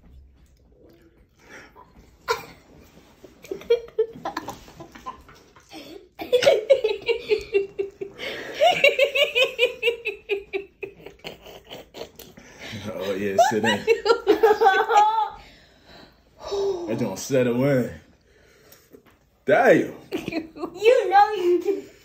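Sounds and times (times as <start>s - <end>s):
person laughing: 5.7s - 15.4s.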